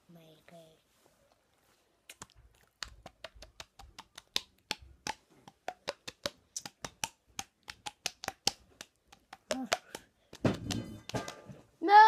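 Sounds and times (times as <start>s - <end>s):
cheek slapping pops: 2.1s - 11.5s.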